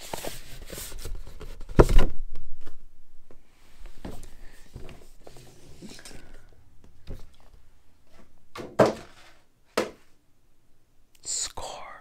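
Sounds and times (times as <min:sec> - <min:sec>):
cardboard boxes rustling: 0:00.0 - 0:02.0, 0:07.0 - 0:09.5
boxes thunking on table: 0:08.5 - 0:10.0.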